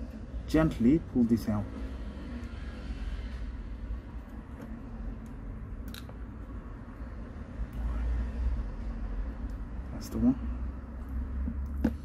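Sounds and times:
tweezers clicking: 9.3 - 9.7.

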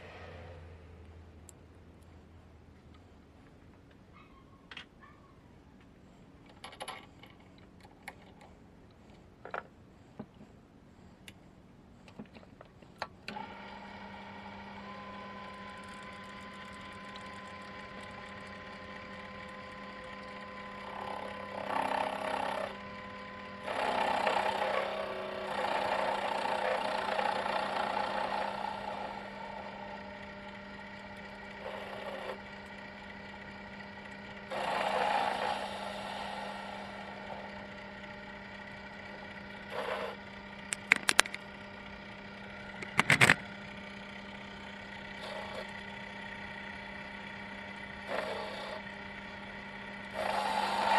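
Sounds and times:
lathe tool cutting steel bolt: 13.3 - 41.4, 42.7 - 43.6, 44.8 - 45.8, 46.7 - 50.9
lathe motor humming: 13.3 - 50.9.

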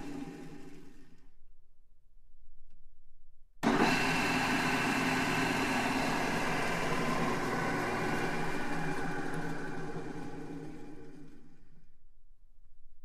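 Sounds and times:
drill press machine whine: 0.0 - 1.2, 3.6 - 11.9.

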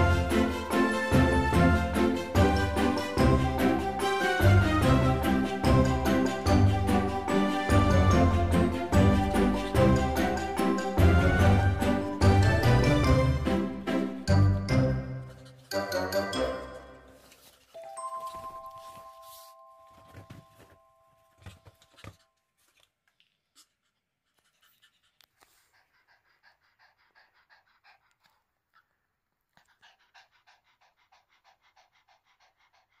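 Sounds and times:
dog panting: 0.0 - 16.3, 21.3 - 33.0
rustling: 17.1 - 26.0
chime ringing: 17.8 - 21.3.

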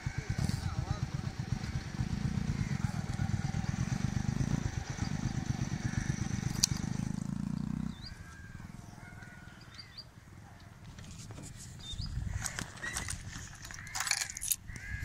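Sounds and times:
motorcycle engine running: 0.0 - 9.4.

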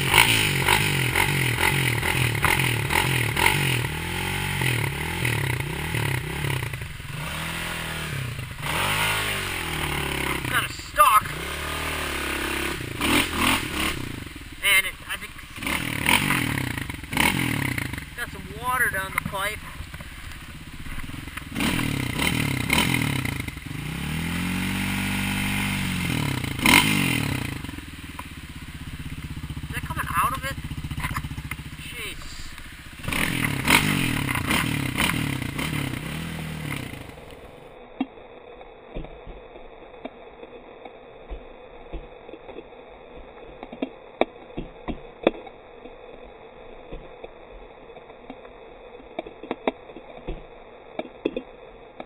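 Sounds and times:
dirt bike engine revving: 0.0 - 37.9.

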